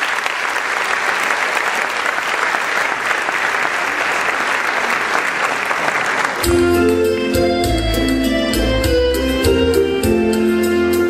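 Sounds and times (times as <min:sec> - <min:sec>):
audience applauding: 0:00.0 - 0:06.8
keyboard music with low bass: 0:06.4 - 0:11.0.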